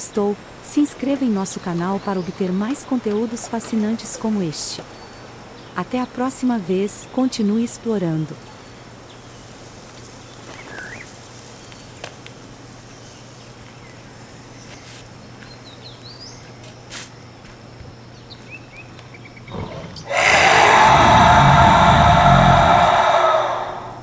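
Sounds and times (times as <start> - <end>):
loud rough roar: 20.1 - 24.0.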